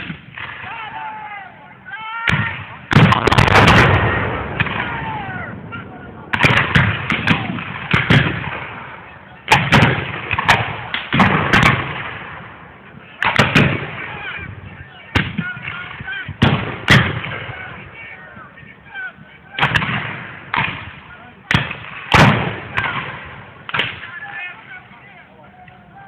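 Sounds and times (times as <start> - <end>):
gunshots with rolling echo: 2.3 - 14.4, 15.1 - 18.0, 19.6 - 24.1.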